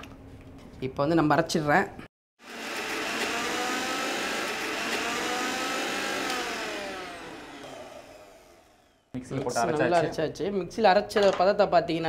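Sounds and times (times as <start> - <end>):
mixer grinder motor whining: 2.4 - 9.2.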